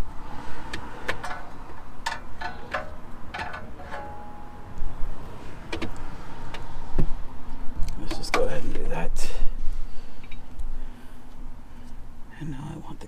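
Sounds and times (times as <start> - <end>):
small metal parts clinking: 1.1 - 4.6.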